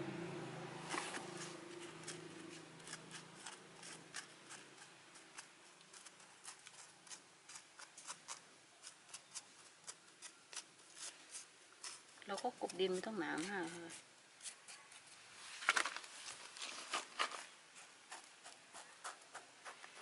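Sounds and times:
low hum: 0:00.0 - 0:02.9.

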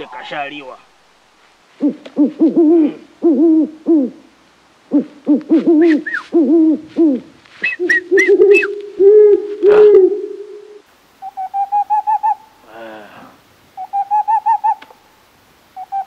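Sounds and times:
owl-like hooting: 0:01.8 - 0:04.3, 0:04.9 - 0:13.0, 0:13.8 - 0:14.9, 0:15.8 - 0:16.0
high chirps: 0:07.6 - 0:12.5.

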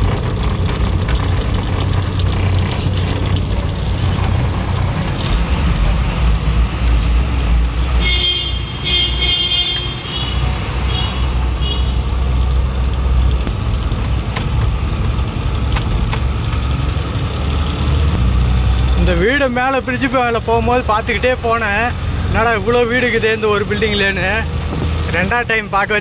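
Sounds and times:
truck engine rumble: 0:00.0 - 0:26.0
vehicle horn blasts: 0:08.0 - 0:12.0.

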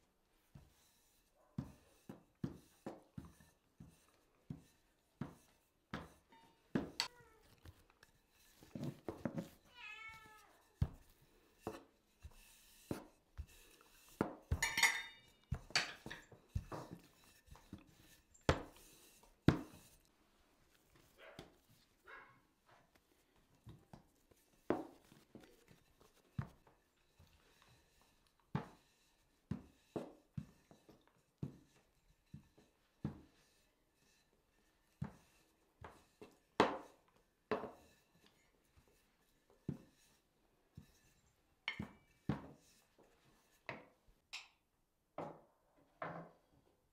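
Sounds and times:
spoon tapping on plate: 0:14.5 - 0:15.2.

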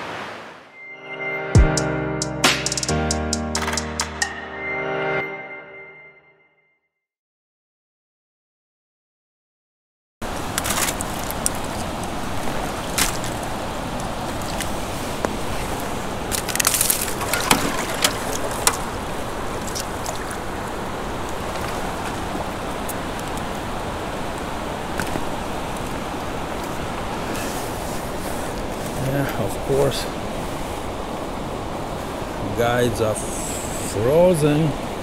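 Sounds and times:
creek water rushing: 0:10.2 - 0:35.0
ice clicks and crackles: 0:10.3 - 0:20.4.

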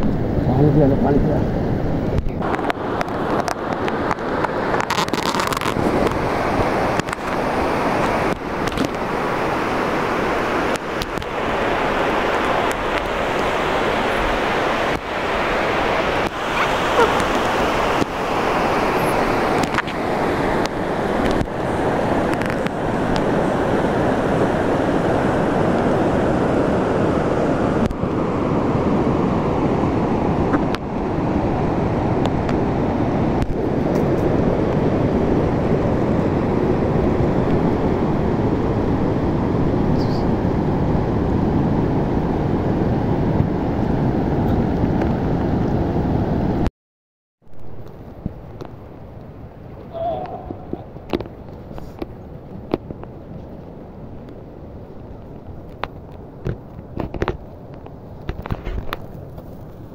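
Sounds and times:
wind: 0:00.0 - 0:46.7, 0:47.4 - 0:59.9
river water flowing: 0:01.4 - 0:33.3.

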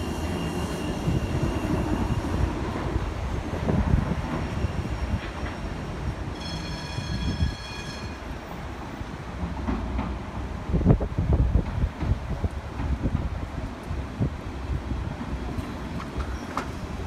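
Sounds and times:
tram wheels rumbling on rails: 0:00.0 - 0:17.0.

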